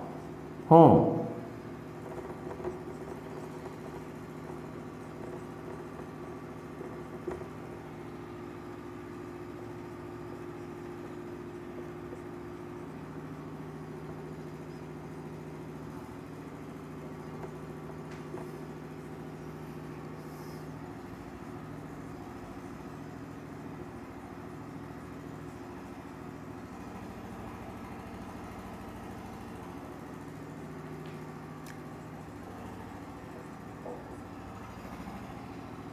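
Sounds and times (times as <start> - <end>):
steady mechanical hum: 0.0 - 35.9.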